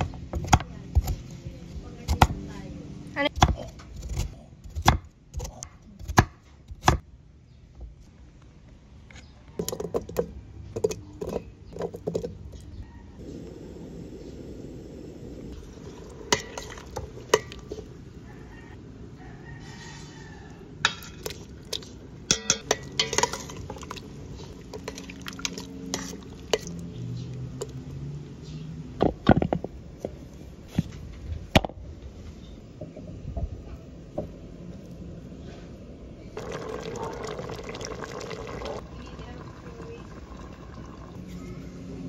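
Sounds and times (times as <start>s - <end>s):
utensils clinking on metal pot: 16.2s - 17.9s, 20.9s - 26.9s
liquid splashing: 36.4s - 38.8s.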